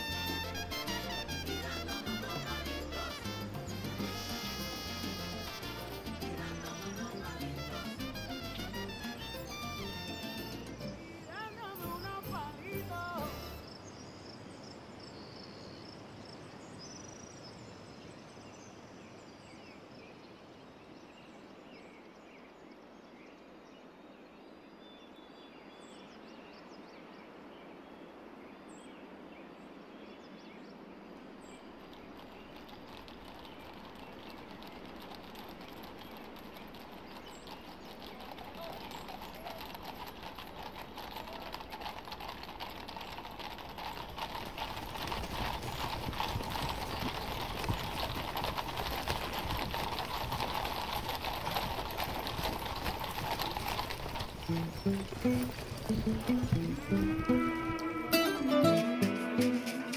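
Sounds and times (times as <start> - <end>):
horse hooves on pavement: 0.0 - 13.8, 31.8 - 59.9.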